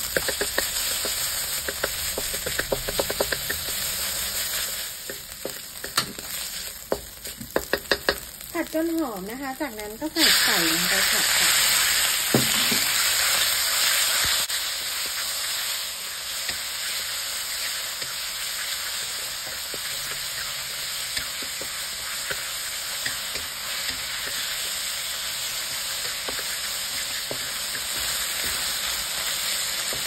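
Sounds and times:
meat sizzling in a wok: 0.0 - 30.0
wooden spatula knocking and scraping: 0.1 - 3.8, 6.9 - 8.2, 12.3 - 12.9, 26.0 - 28.8.

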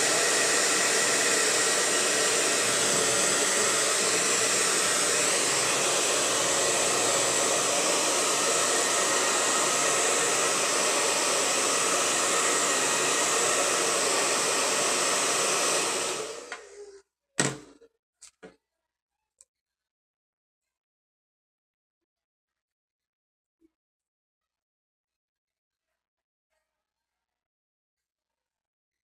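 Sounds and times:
hair dryer blowing: 0.0 - 16.9.

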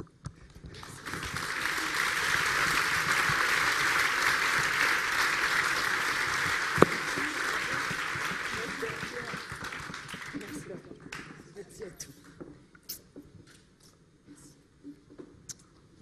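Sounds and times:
audience applause: 0.7 - 11.3.

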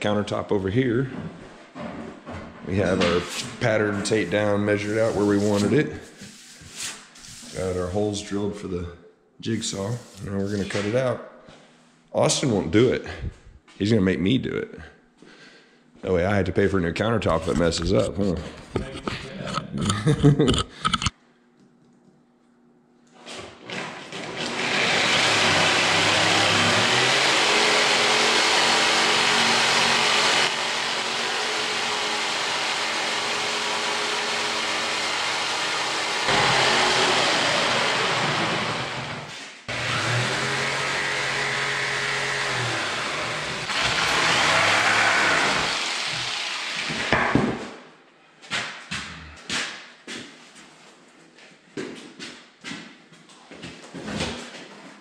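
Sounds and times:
electric jigsaw sawing: 23.6 - 47.2.

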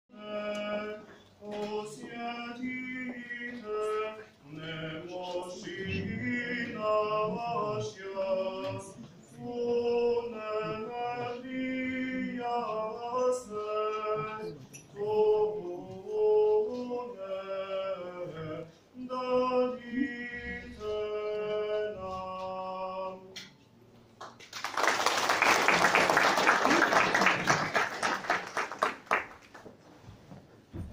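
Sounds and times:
group singing a cappella: 0.1 - 23.6
audience applauding: 24.2 - 29.7.

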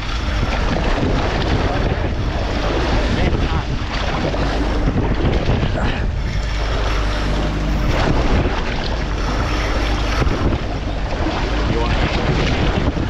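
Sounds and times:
low machinery hum: 0.0 - 13.0
sea washing against hull: 0.0 - 13.0
wind buffeting microphone: 0.0 - 13.0.

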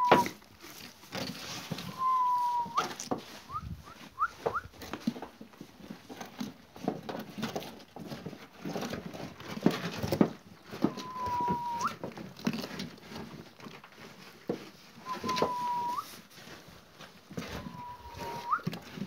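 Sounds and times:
long whistled note: 0.0 - 0.3, 1.9 - 2.8, 10.9 - 11.9, 15.0 - 16.1, 17.5 - 18.7
sheep crunching feed: 0.0 - 19.0.

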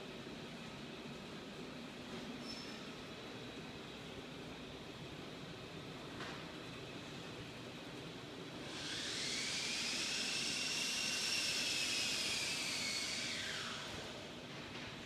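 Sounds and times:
high mechanical whine with hiss: 8.4 - 15.0.

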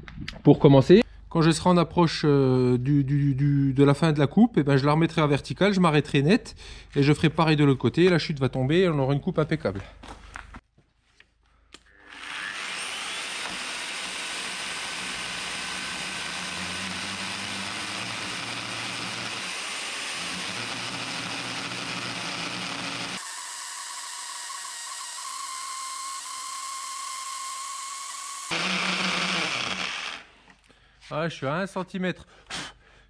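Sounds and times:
circular saw cutting wood: 11.9 - 30.4.

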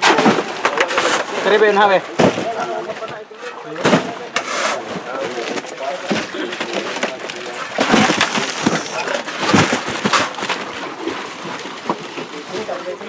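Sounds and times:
crushed ice crunching: 4.5 - 12.0.

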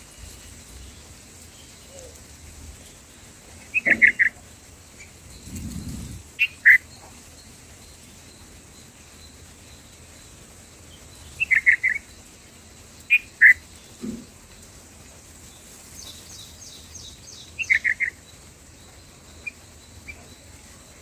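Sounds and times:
bird calls: 2.9 - 7.4, 10.8 - 12.3, 13.0 - 14.4, 16.0 - 21.0.

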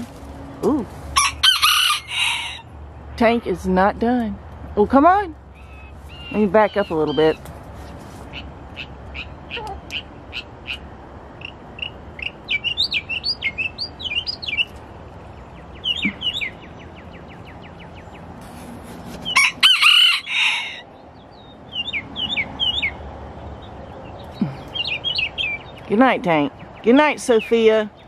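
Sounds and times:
rooster crowing: 1.2 - 2.7, 19.3 - 20.9
small birds chirping: 3.2 - 19.6, 20.2 - 28.0.

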